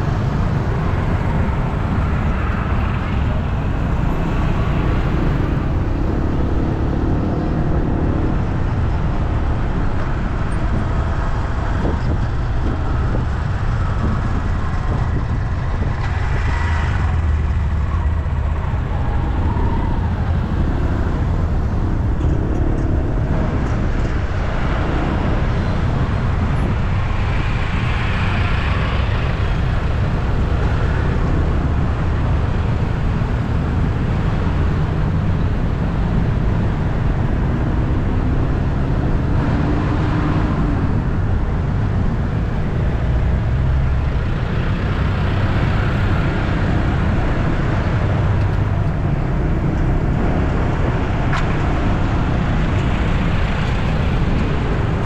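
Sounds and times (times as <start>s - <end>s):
road traffic rumble: 0.0s - 55.0s.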